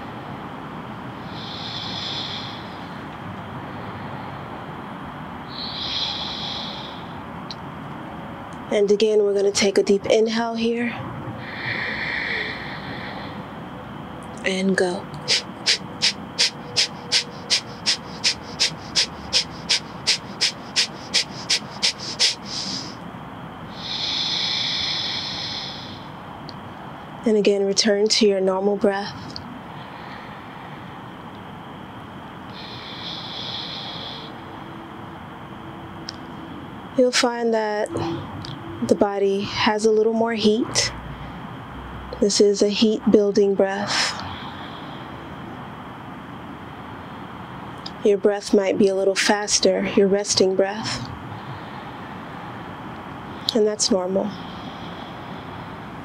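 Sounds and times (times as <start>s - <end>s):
sharp nasal exhales: 1.2s - 2.9s, 5.5s - 7.2s, 11.4s - 13.5s, 15.2s - 23.0s, 23.7s - 26.2s, 32.5s - 34.6s, 54.3s - 55.8s
woman breathing through nose: 1.2s - 3.0s, 5.5s - 7.2s, 11.4s - 13.6s, 15.2s - 23.0s, 23.7s - 26.2s, 29.7s - 30.9s, 32.5s - 34.7s, 44.1s - 45.4s, 51.3s - 52.6s, 54.3s - 56.0s
steady background rush: 12.7s - 23.8s
short puff of breath: 15.3s - 23.0s.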